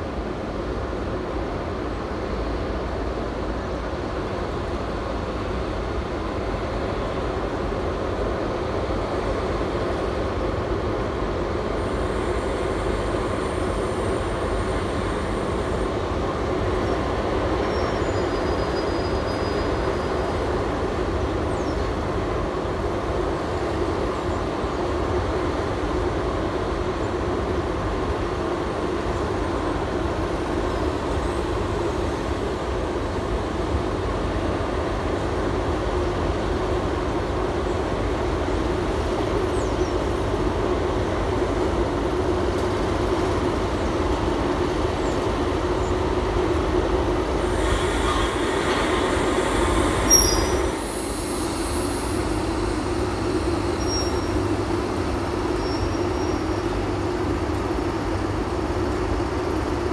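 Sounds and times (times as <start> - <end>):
freight train rumbling on rails: 0.0 - 59.9
high wheel squeal: 47.4 - 52.9, 53.5 - 54.5.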